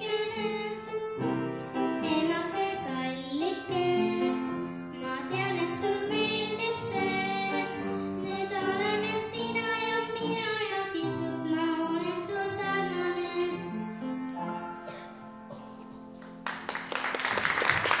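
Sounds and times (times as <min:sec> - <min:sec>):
girl singing: 0:00.0 - 0:01.0, 0:01.9 - 0:13.8
piano accompaniment: 0:00.0 - 0:18.0
applause: 0:16.2 - 0:18.0.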